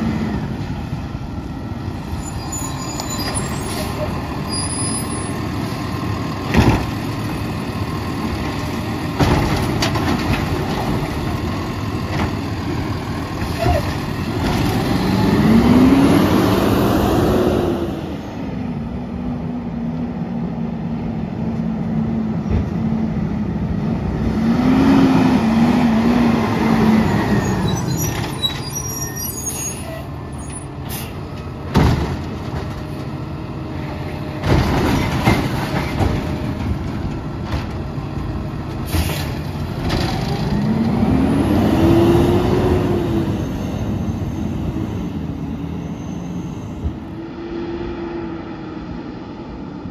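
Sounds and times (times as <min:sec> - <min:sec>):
sharp knocks of carts: 0:06.4 - 0:07.3, 0:08.3 - 0:12.7, 0:31.4 - 0:33.2, 0:34.2 - 0:40.8
garbage truck engine revving: 0:09.0 - 0:18.2, 0:38.8 - 0:45.3.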